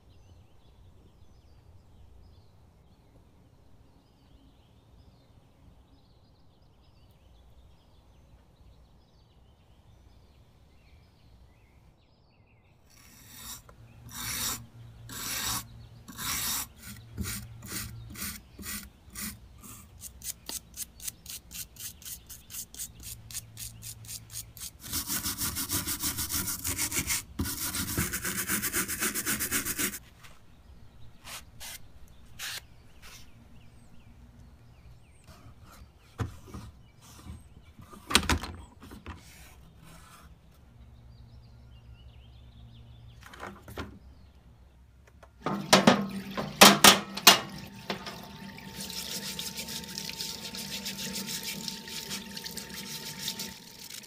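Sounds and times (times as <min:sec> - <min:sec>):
brush scrubbing rusty metal: 0:13.0 - 0:30.0, 0:45.4 - 0:53.6.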